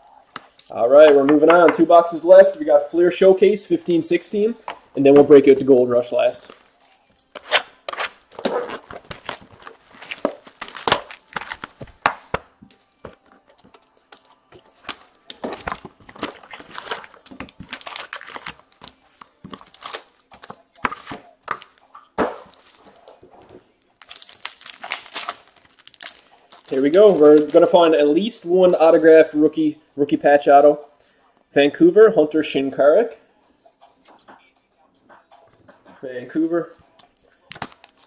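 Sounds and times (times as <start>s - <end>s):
wrappers crinkling and tearing: 6.2s - 12.9s, 14.1s - 21.8s, 22.4s - 29.3s, 37.5s - 38.0s.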